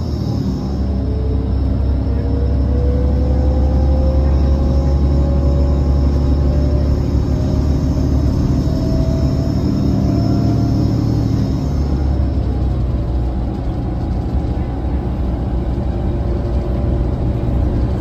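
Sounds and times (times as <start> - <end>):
electric drive whine rising in pitch: 0.0 - 13.7
bus diesel engine rumble: 0.0 - 18.0
road noise: 0.0 - 18.0.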